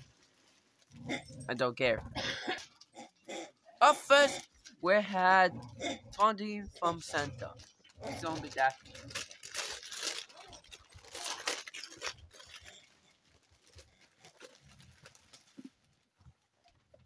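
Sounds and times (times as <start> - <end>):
wrapping paper tearing and rustling: 0.0 - 1.4, 6.8 - 16.6.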